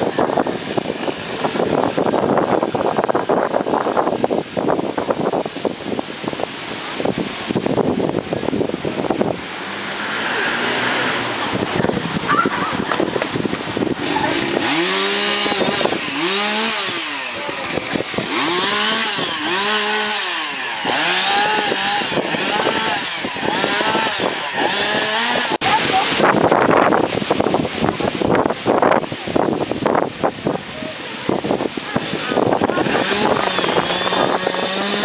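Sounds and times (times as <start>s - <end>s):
chainsaw cutting and revving: 0.0s - 4.7s, 6.4s - 30.2s, 31.2s - 35.0s.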